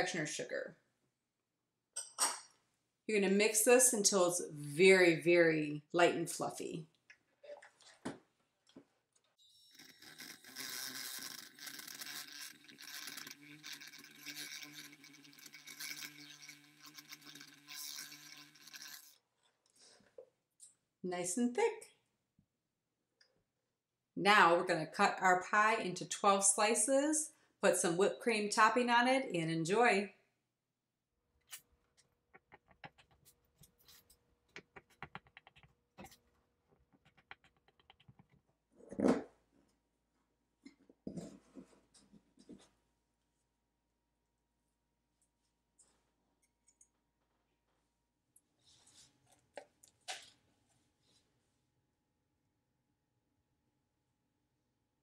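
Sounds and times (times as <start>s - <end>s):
beaters scraping in bowl: 9.6s - 19.2s, 32.3s - 36.2s
hand mixer motor hum: 9.6s - 19.2s.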